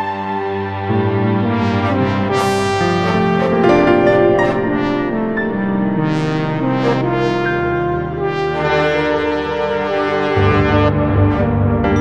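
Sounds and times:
brass playing held chords: 1.3s - 12.0s
orchestral accented strokes: 2.4s - 8.7s.

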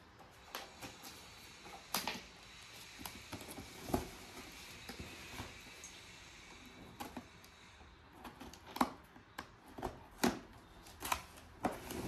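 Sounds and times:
rustling with knocks and scrapes: 8.1s - 12.0s.

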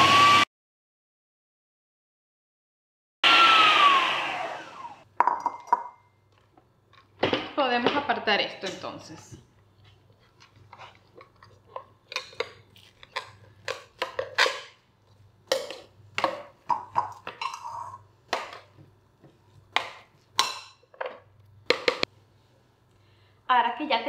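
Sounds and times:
dishes and utensils clinking: 5.2s - 6.1s, 15.5s - 18.0s.

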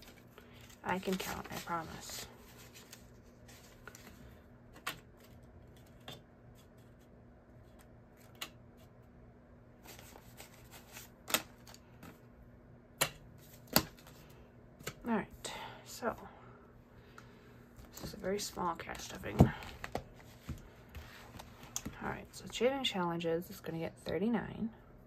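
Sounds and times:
banknotes rustling and flicking: 0.0s - 9.0s.

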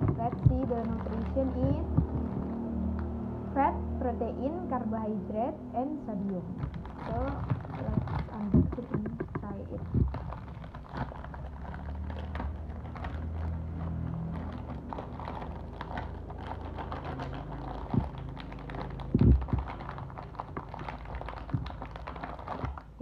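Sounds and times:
dull thumps: 0.0s - 2.6s, 6.5s - 11.4s, 19.1s - 23.0s
plastic wrapper crinkling: 0.0s - 3.2s, 6.1s - 23.0s
low steady hum: 0.0s - 23.0s.

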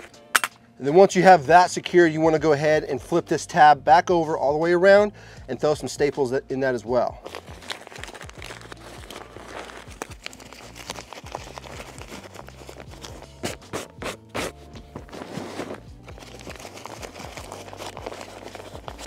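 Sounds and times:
background music with bass line: 0.0s - 19.0s
foil insulation scraping and crinkling: 7.2s - 19.0s.

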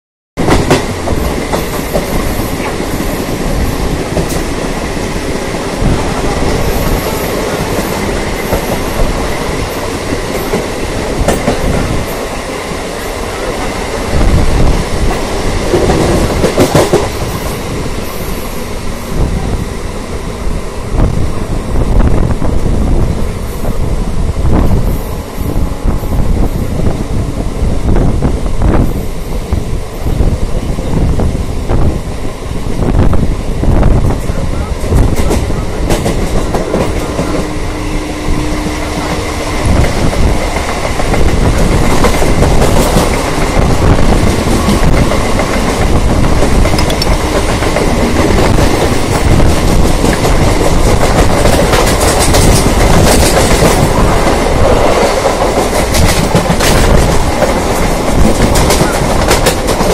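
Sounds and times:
electric train running: 0.4s - 59.9s
second train running alongside: 0.4s - 59.9s
wheels clattering on track: 38.6s - 59.9s.

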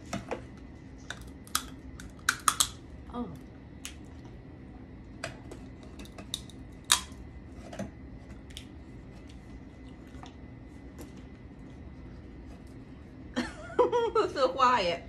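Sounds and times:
low room hum: 0.0s - 15.0s
crab shell cracking: 1.1s - 2.8s, 6.0s - 7.2s.

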